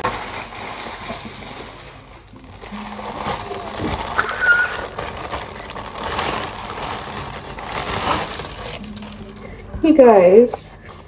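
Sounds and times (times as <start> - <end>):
plastic packaging crinkling: 0.0 - 9.7.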